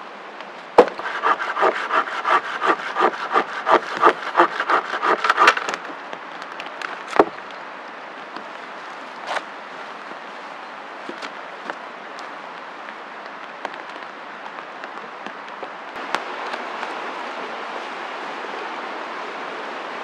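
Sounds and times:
sharp wooden knock: 0.8 - 5.6
hand saw cutting a branch: 0.8 - 5.8.

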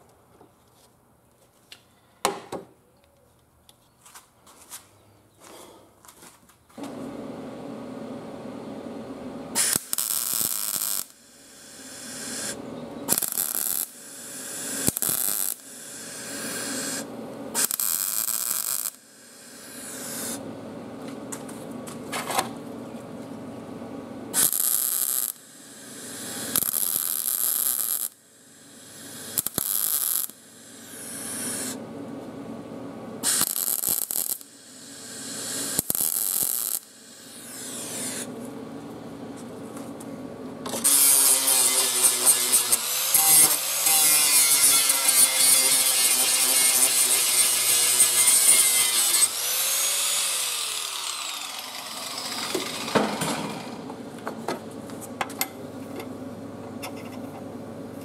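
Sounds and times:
welder electrical hum: 5.4 - 58.0
welding arc crackle: 9.5 - 20.4, 24.4 - 31.8, 33.2 - 38.3, 40.8 - 53.8.

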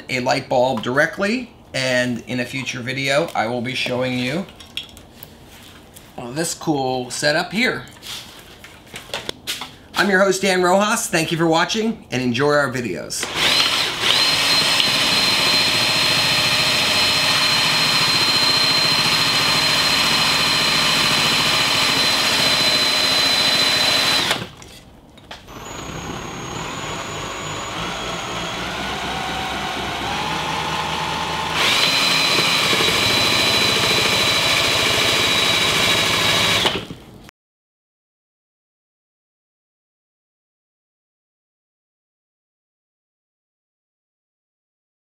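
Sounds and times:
electric drill motor whine: 13.2 - 24.5, 25.5 - 37.0.

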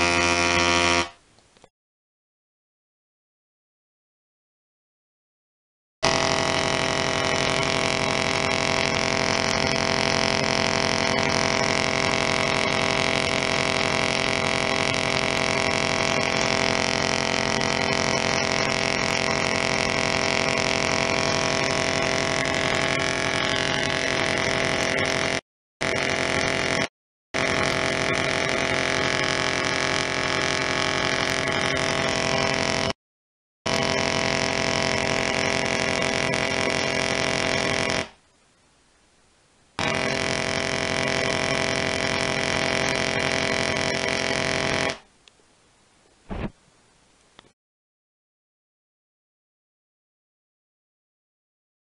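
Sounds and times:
tesla coil sparks buzzing: 0.0 - 1.2, 6.0 - 33.0, 33.7 - 38.2, 39.8 - 45.1.

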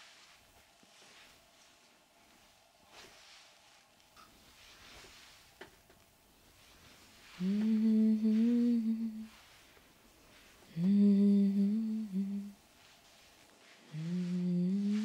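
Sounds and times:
woman humming: 7.4 - 9.4, 10.7 - 12.6, 13.9 - 15.0.

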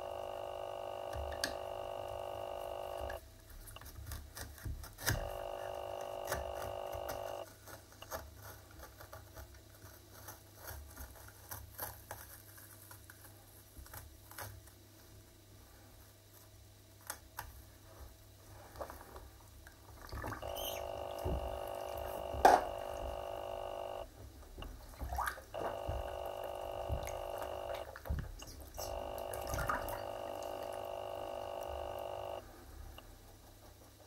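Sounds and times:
steady pitched hum: 0.0 - 3.2, 5.1 - 7.4, 20.2 - 33.0
water splashing: 26.8 - 30.8.

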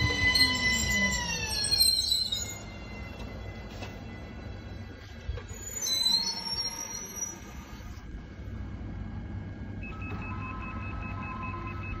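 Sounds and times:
train brakes squealing: 0.0 - 3.4, 5.5 - 8.1.

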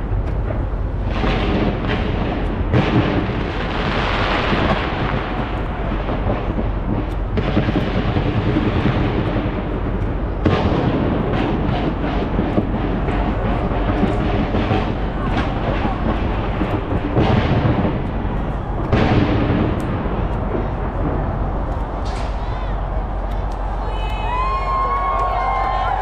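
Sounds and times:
fireworks bangs and crackle: 0.0 - 26.0.

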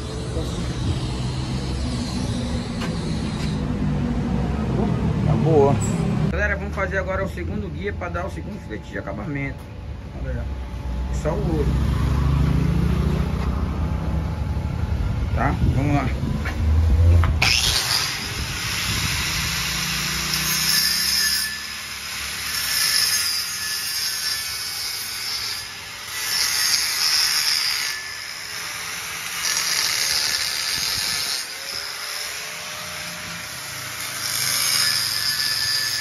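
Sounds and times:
angle grinder grinding metal: 0.0 - 3.9, 17.2 - 36.0.

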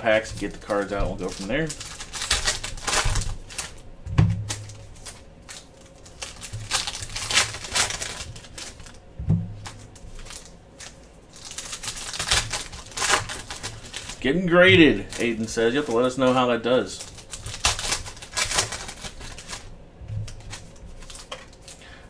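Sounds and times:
dull thumps of packs handled: 0.0 - 5.2, 12.4 - 15.8
foil wrappers crinkling and tearing: 0.0 - 22.0.

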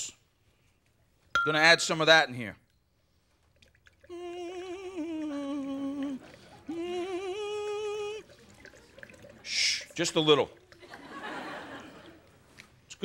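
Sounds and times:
person humming: 4.1 - 8.4.

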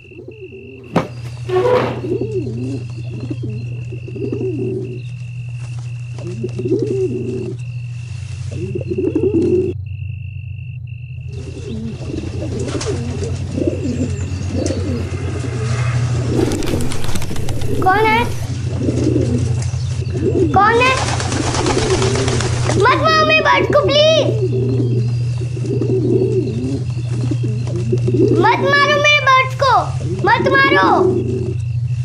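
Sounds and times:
low wavering warbles: 0.0 - 5.2, 6.1 - 9.8, 11.3 - 20.7, 23.6 - 29.1
low drone: 1.5 - 20.6.

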